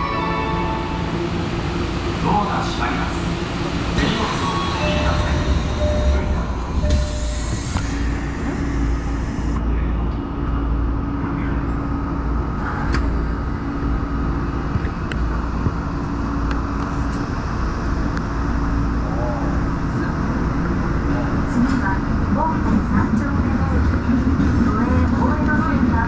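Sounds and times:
train wheels rumbling on rail: 0.0 - 26.0
train motor hum: 0.2 - 26.0.

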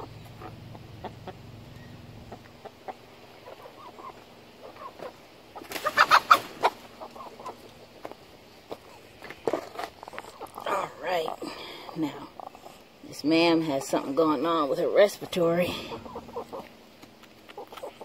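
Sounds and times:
hens clucking: 0.0 - 18.0
hen squawking: 2.6 - 5.2, 15.7 - 16.7.

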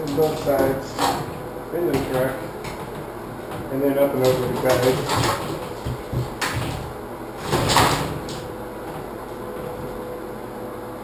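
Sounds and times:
shower door sliding: 0.0 - 2.9, 3.5 - 9.1.

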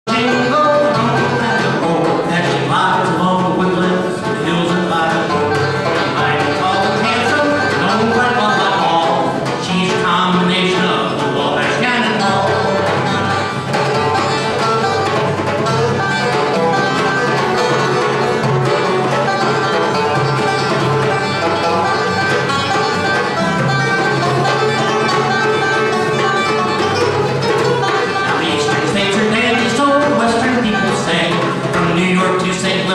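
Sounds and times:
banjo picking: 0.1 - 32.9
hand drum: 0.1 - 32.9
strummed acoustic guitar: 0.1 - 32.9.

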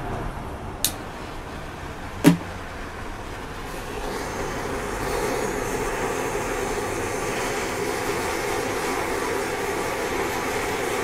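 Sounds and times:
steady flame hiss: 0.4 - 11.0
torch lighting pop: 2.2 - 2.6.

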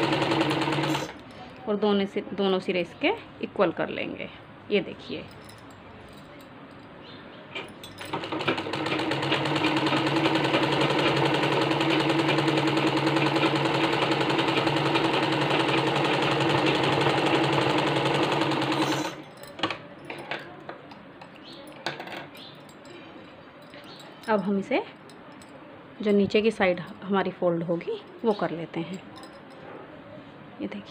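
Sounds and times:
sewing machine stitching: 0.0 - 1.2, 8.1 - 19.2.

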